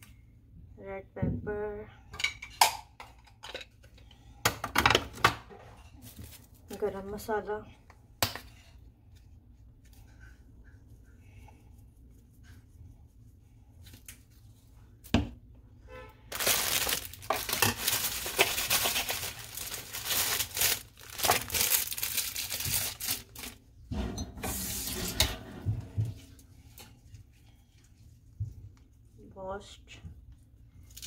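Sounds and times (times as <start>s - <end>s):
herbs rustling and crinkling: 6.0s - 7.3s, 16.3s - 23.6s, 30.8s - 31.0s.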